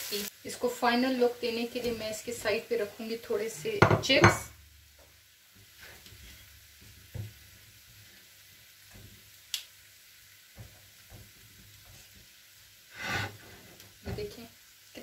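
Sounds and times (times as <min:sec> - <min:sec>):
faint pan sizzle: 0:00.0 - 0:15.0
tongs scraping pan: 0:12.9 - 0:13.7.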